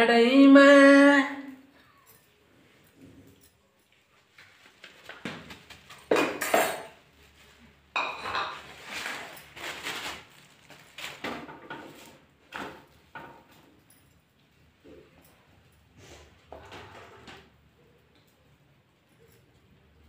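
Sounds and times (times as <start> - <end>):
steel dishes clattering: 6.1 - 7.0, 8.0 - 9.3.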